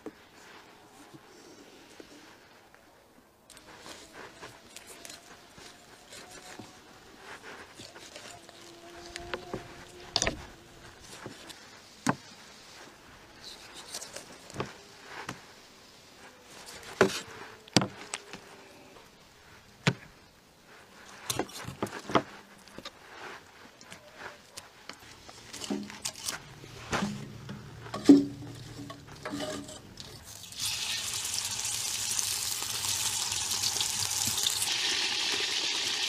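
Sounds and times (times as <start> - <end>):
handling raw meat: 3.3 - 15.6.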